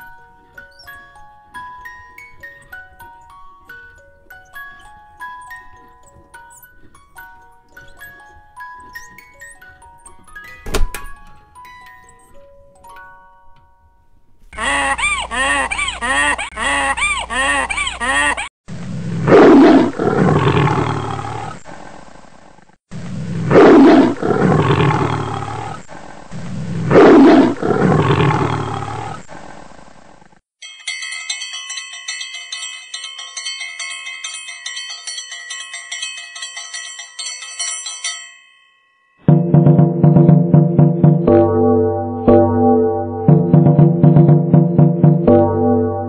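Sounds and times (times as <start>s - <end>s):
bright chiming music: 0.0s - 14.2s
loud animal roar: 19.1s - 21.7s, 23.4s - 29.5s.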